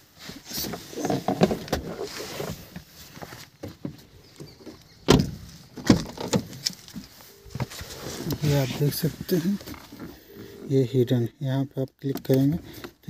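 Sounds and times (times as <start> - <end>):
car door handling rustling: 0.4 - 10.6.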